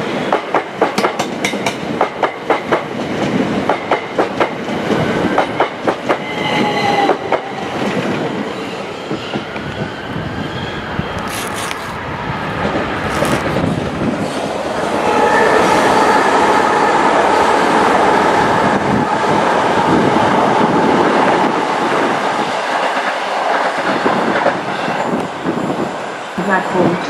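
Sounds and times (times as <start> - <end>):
train wheels clattering over rail joints: 0.3 - 4.6.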